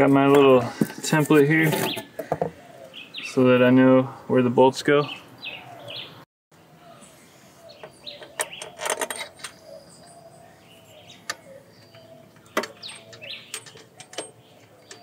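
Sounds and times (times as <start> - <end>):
birds chirping: 0.0 - 15.0
tools and bolts rattling: 8.1 - 9.7, 11.3 - 15.0.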